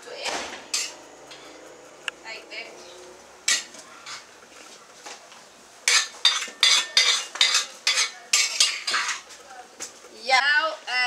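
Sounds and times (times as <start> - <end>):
metal spoon scraping metal bowl: 0.7 - 1.5, 5.9 - 9.2.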